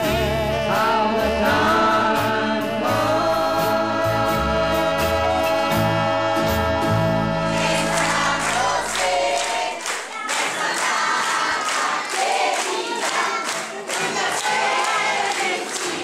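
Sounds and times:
background music: 0:00.0 - 0:09.4
group of people singing: 0:00.0 - 0:16.0
people clapping in rhythm: 0:07.4 - 0:16.0.

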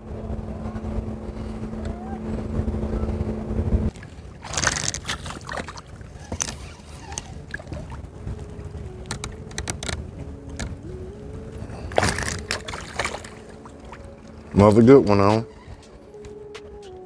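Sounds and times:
small boat motor humming: 0:00.0 - 0:17.0
fish splashing at water surface: 0:03.9 - 0:06.8.

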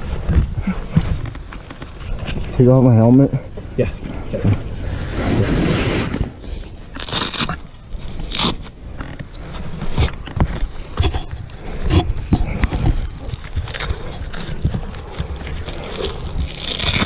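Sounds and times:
fabric and hands scraping microphone: 0:04.0 - 0:17.0.

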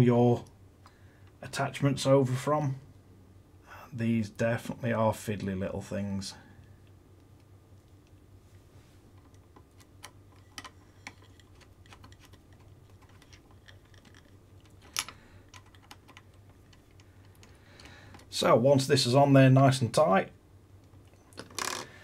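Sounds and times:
small metal parts clicking: 0:09.2 - 0:18.3.

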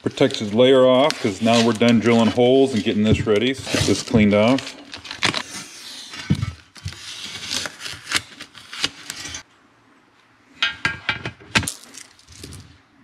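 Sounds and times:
plastic film peeling off: 0:03.7 - 0:09.4.

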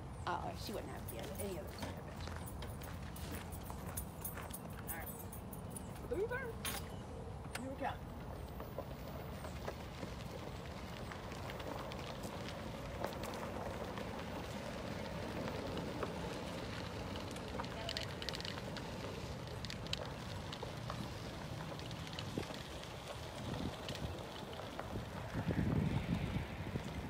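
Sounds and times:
gravel crunching: 0:00.0 - 0:27.0
wind rumble on microphone: 0:19.2 - 0:27.0.

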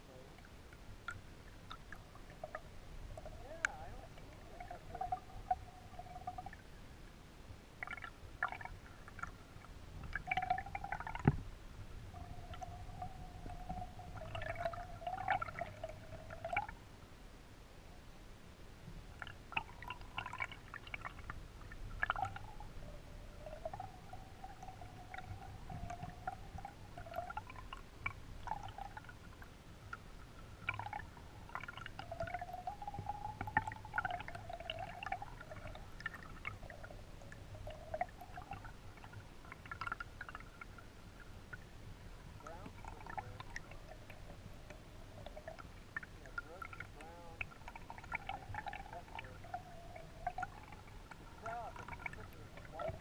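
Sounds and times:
underwater rumble of water: 0:00.0 - 0:17.4, 0:18.1 - 0:53.0
wavering tones: 0:12.1 - 0:16.7.

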